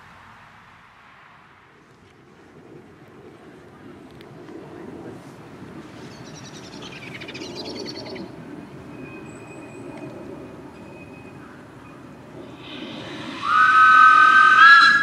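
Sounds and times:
steam train rumbling on track: 7.7 - 15.0.

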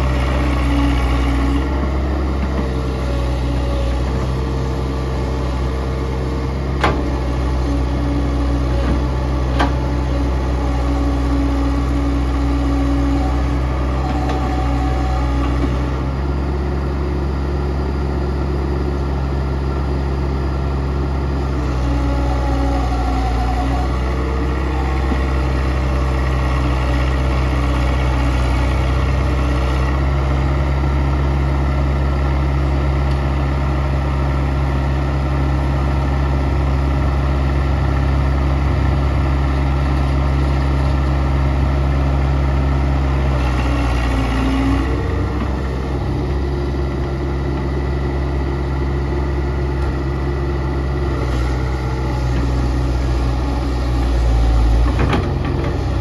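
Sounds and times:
excavator diesel engine running: 0.0 - 56.0.

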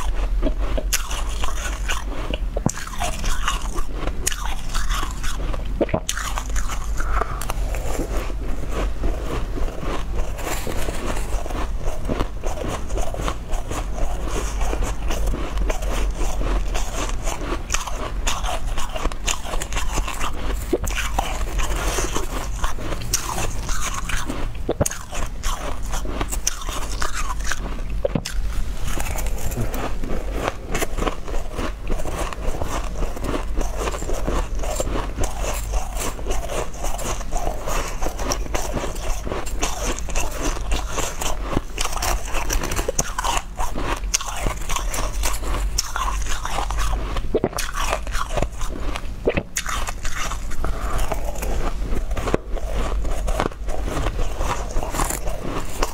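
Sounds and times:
crushed ice being chewed: 0.0 - 55.9
metal spoon digging through ice: 9.7 - 24.4, 49.7 - 55.9.

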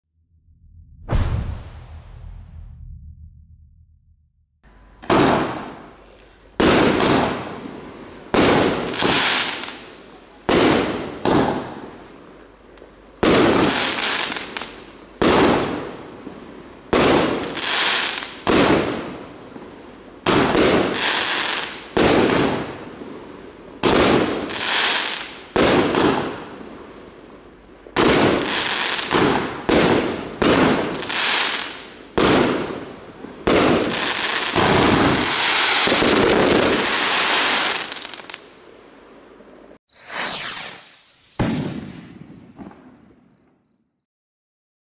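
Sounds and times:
firework barrage bangs: 1.0 - 3.2, 5.0 - 6.0, 6.6 - 9.5, 16.9 - 19.2, 21.9 - 22.8, 25.6 - 26.5, 28.0 - 31.2, 33.4 - 38.1, 39.9 - 43.3.

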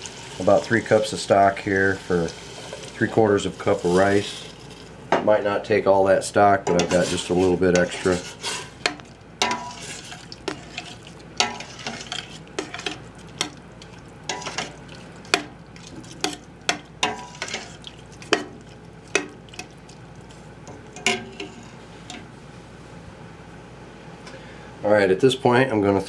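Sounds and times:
pot sizzling: 0.0 - 5.0, 6.6 - 22.4.

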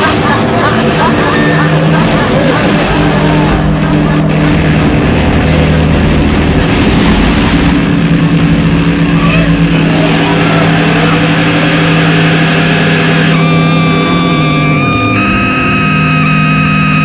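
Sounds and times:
high sustained note: 0.0 - 17.0
low droning music: 0.0 - 17.0.

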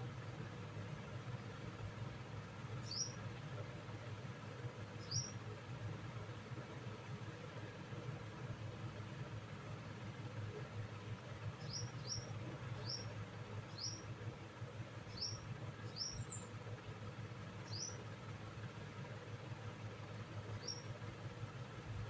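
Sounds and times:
steady low hum: 0.0 - 22.0
small bird chirping: 2.8 - 3.2, 5.0 - 5.4, 11.6 - 14.2, 15.0 - 16.6, 17.6 - 18.1, 20.5 - 21.0.

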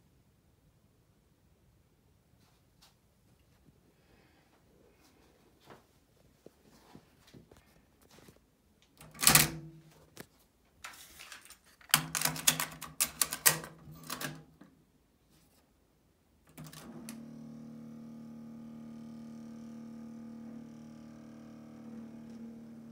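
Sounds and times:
plastic clicks and rattles: 10.9 - 14.7
cassette deck hum: 16.5 - 22.9.

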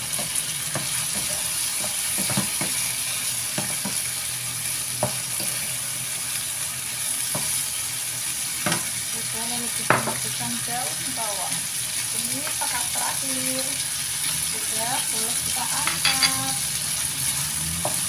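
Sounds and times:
stir-fry sizzling in a frying pan: 0.0 - 18.0
spatula scraping and knocking pan: 15.8 - 16.6.

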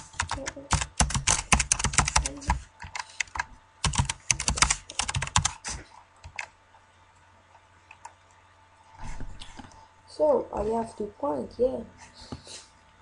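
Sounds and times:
typing on computer keyboard: 0.0 - 5.6, 6.2 - 6.5.

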